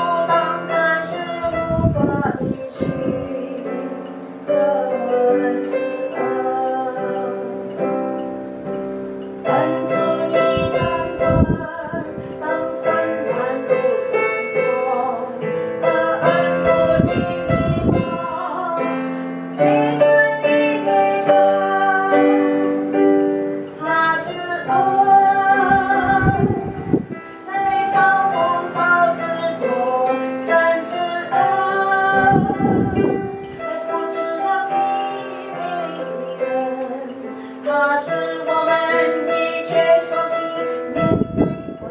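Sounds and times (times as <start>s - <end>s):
woman singing: 0.0s - 8.2s, 9.4s - 41.9s
piano accompaniment: 0.0s - 41.9s.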